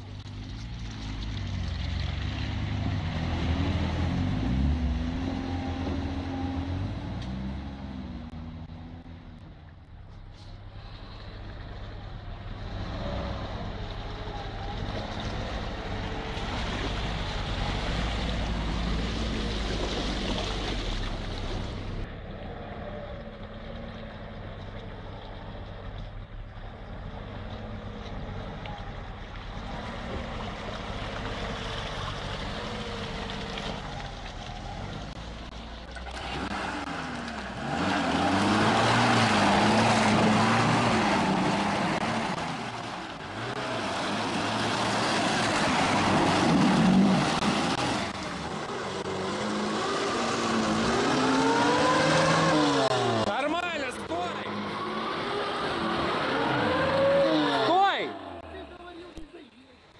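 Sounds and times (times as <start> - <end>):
churning through mud and water: 0.0 - 7.5, 11.0 - 59.9
engine revving hard: 36.2 - 42.4, 43.3 - 53.4, 54.2 - 58.4.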